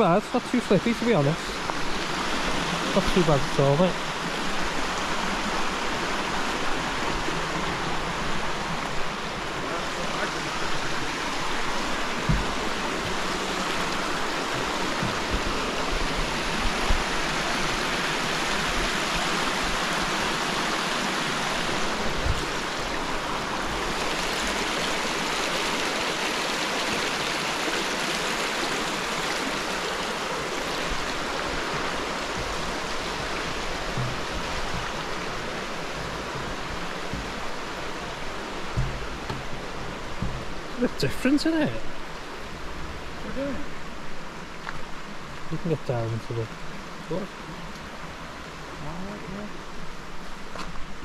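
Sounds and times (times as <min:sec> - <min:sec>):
river water flowing: 0:00.0 - 0:51.0
low thumps: 0:12.0 - 0:17.1, 0:30.9 - 0:40.8.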